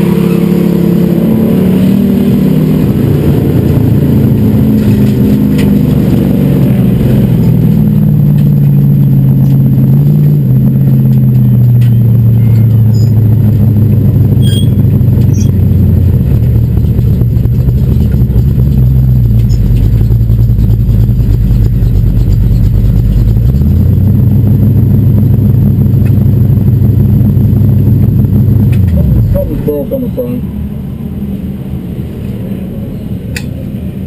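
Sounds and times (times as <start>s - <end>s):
race car engine running low: 0.0s - 34.0s.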